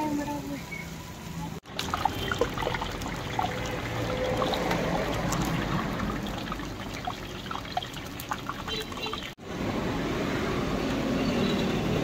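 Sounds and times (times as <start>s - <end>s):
oil sizzling with crackles: 0.0s - 9.4s.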